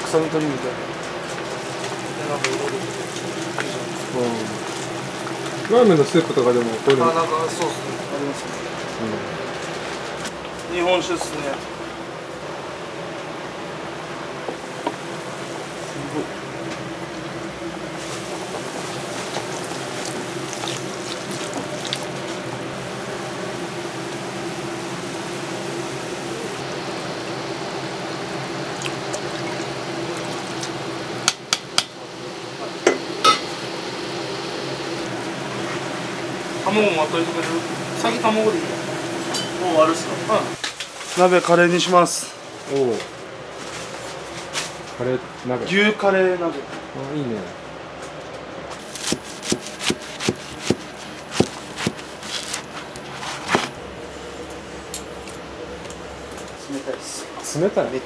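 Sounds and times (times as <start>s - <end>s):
steady hum: 0.0s - 58.0s
liquid being poured: 18.2s - 22.5s, 28.7s - 30.7s
kitchenware clinking: 32.9s - 33.5s, 39.3s - 39.6s
knife chopping on cutting board: 48.9s - 52.0s.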